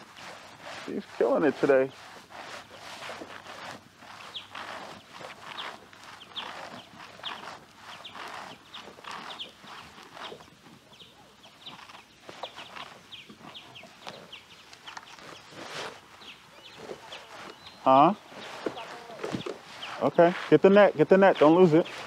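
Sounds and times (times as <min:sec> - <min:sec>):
water lapping against kayak hull: 0:00.0 - 0:10.8.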